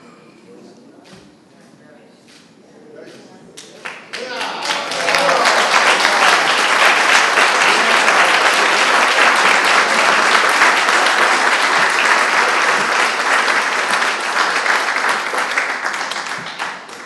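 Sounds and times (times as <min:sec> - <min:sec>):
audience applauding: 0:03.8 - 0:17.0.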